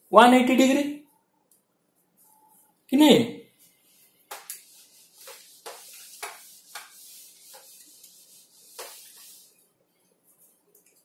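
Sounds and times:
duster rubbing whiteboard: 3.7s - 9.6s.

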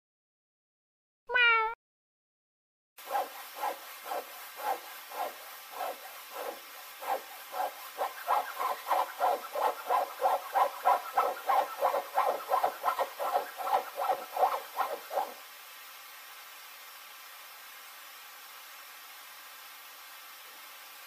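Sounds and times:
cat calling: 1.3s - 1.8s.

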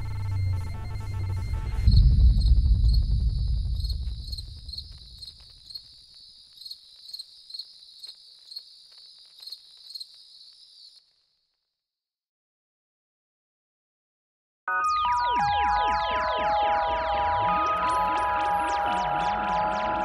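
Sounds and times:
deep boom: 0.0s - 5.2s
crickets chirping: 1.4s - 11.1s.

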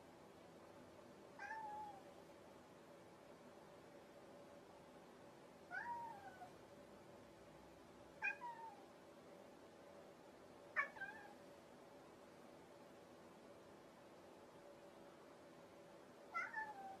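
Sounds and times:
cat meowing: 1.4s - 2.1s, 5.7s - 6.5s, 8.2s - 8.9s, 10.8s - 11.4s, 16.3s - 17.0s.

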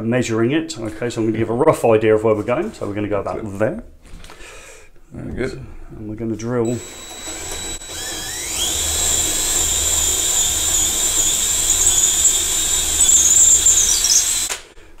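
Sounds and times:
power drill boring into wood: 6.7s - 14.7s.

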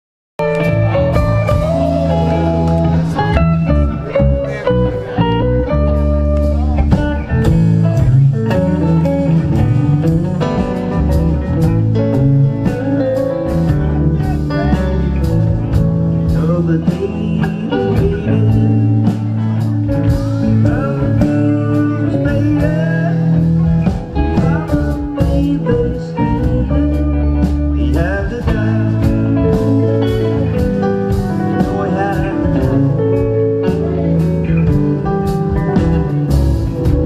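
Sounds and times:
electric guitar lines: 0.4s - 37.0s
live rock band playing: 0.4s - 37.0s.

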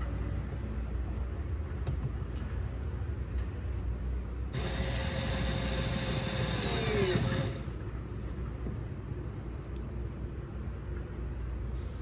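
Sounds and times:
power drill running: 4.6s - 7.8s.

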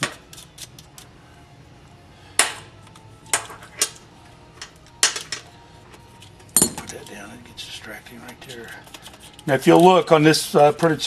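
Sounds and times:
metal nuts and tool clinking: 4.6s - 10.1s.

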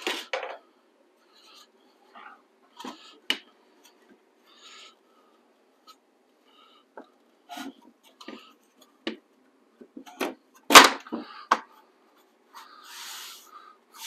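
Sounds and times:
wooden pieces knocking on workbench: 0.0s - 0.6s.

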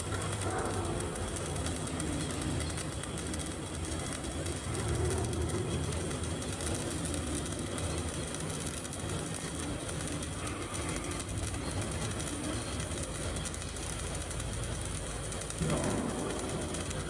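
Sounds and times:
welding arc crackling and hissing: 0.0s - 17.0s.

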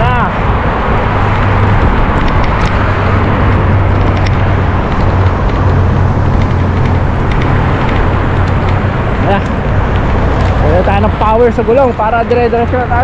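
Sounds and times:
bicycle road noise: 0.0s - 13.0s
passing car traffic: 0.0s - 13.0s
wind on the microphone: 0.0s - 13.0s.

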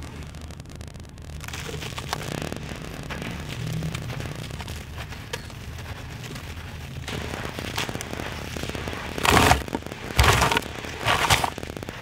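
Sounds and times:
wet gritty chunk crumbling: 9.1s - 11.6s.

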